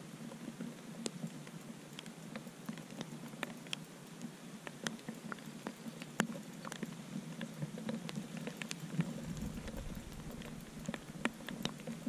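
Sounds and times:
rain falling: 0:08.1 - 0:12.0
low rumble: 0:09.1 - 0:11.3.

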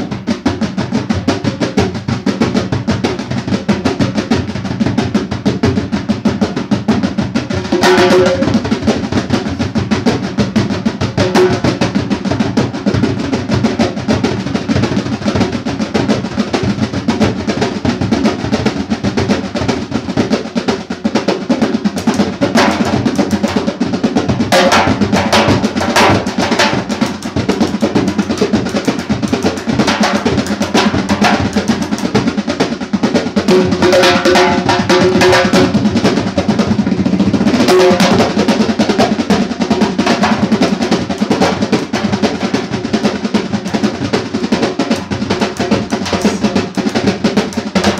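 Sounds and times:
barrel drum fast rhythm: 0:00.0 - 0:47.9
frame drum played by hand: 0:00.0 - 0:47.9.

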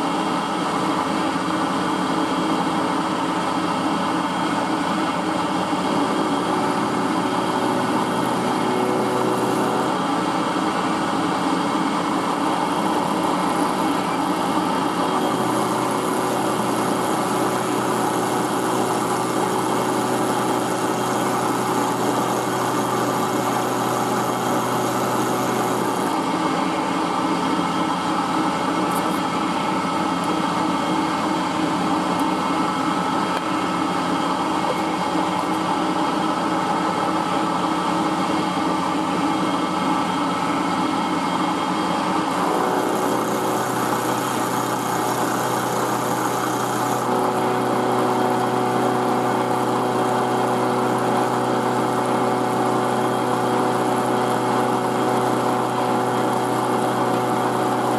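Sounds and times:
milling machine cutting steel: 0:03.3 - 0:30.6, 0:39.7 - 0:57.9.

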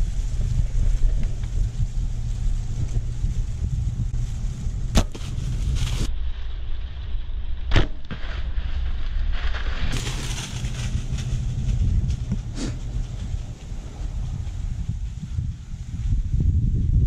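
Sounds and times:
wind buffeting microphone: 0:00.0 - 0:06.1, 0:09.9 - 0:17.0.

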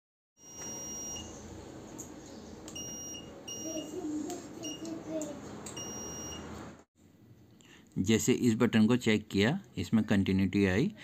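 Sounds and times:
multimeter continuity beeps: 0:00.4 - 0:01.4, 0:02.7 - 0:04.0, 0:04.6 - 0:05.0, 0:05.8 - 0:06.5.

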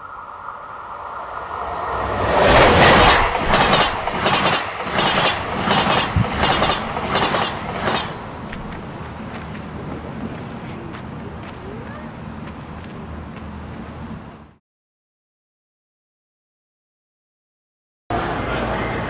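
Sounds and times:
steady high tone: 0:00.0 - 0:03.6
train passing with rushing clatter: 0:00.0 - 0:14.6, 0:18.1 - 0:19.0
rhythmic wheel clacks: 0:02.7 - 0:08.2.

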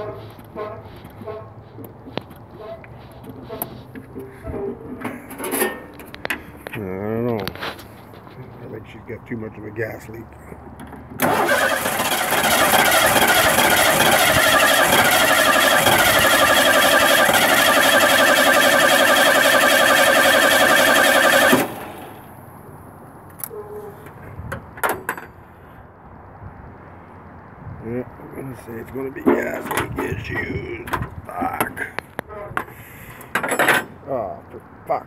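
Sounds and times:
engine starter cranking whine: 0:11.2 - 0:22.3.

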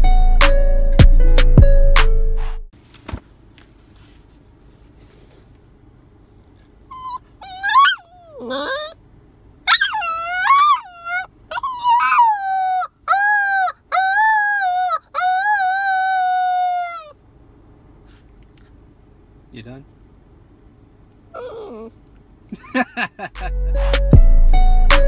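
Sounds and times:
intro music: 0:00.0 - 0:02.7, 0:23.4 - 0:25.0
puppy howling and whining: 0:06.3 - 0:09.0, 0:09.6 - 0:17.2, 0:21.2 - 0:22.0.

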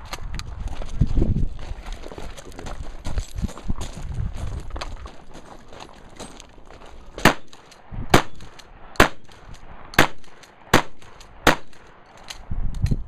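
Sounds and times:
rifle gunshots: 0:07.2 - 0:09.4, 0:10.0 - 0:11.9.

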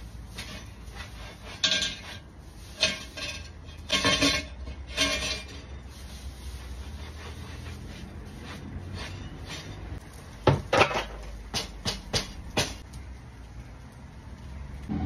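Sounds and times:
metal utensil clanking on pan: 0:00.4 - 0:05.8.

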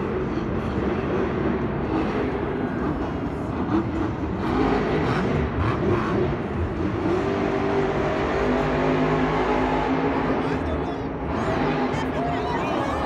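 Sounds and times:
truck engine revving hard: 0:00.8 - 0:13.0.

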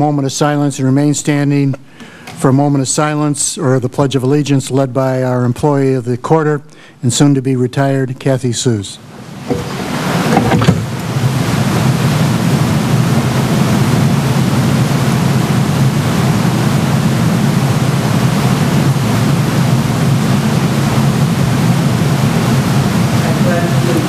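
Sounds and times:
brief knock: 0:09.5 - 0:10.8.

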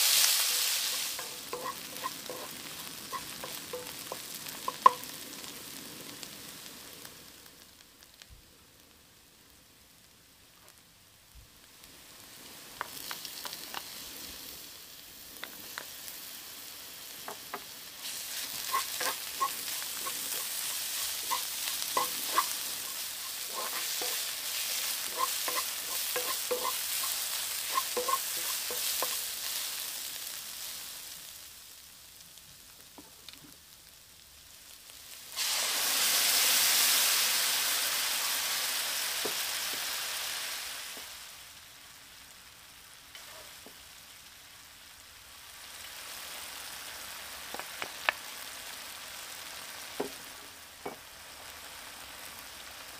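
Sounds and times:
food sizzling in oil: 0:00.0 - 0:08.2, 0:11.6 - 0:52.9
loud hiss of tomatoes in pan: 0:00.0 - 0:09.4, 0:11.4 - 0:52.9
wooden spoon scraping pan: 0:00.4 - 0:05.0, 0:17.3 - 0:29.2.

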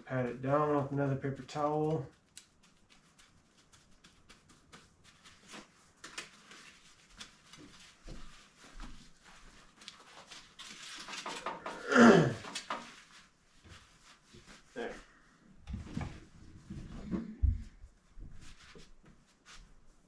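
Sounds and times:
paper towels crinkling: 0:01.4 - 0:15.2.

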